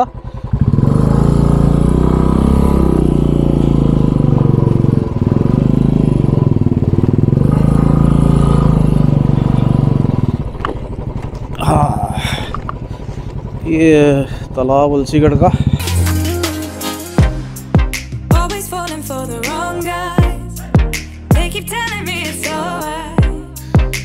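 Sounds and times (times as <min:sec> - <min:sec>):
motorcycle engine thumping: 0:00.0 - 0:15.8.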